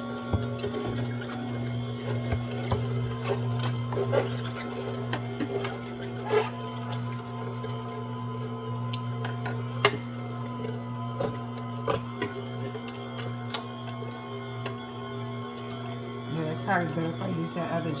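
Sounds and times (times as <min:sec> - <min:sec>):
juicer motor humming: 0:00.0 - 0:18.0
fruit crackling and popping: 0:08.8 - 0:10.0.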